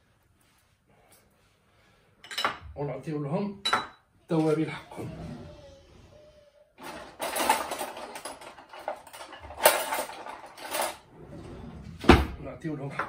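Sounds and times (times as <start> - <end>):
cutlery clattering in a drawer: 6.8 - 12.2.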